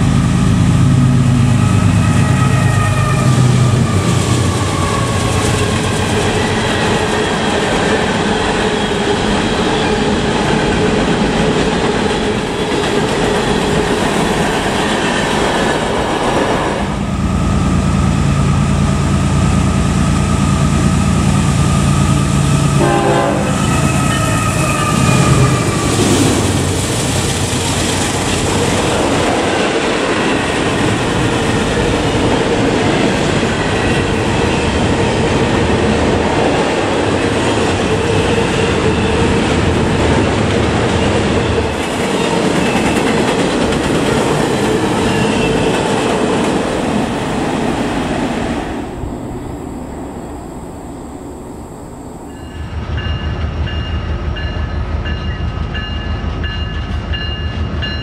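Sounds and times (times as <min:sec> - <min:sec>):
freight train wheels rumbling: 0:00.0 - 0:58.0
steady high tones: 0:48.8 - 0:54.5
held tone: 0:49.0 - 0:53.2.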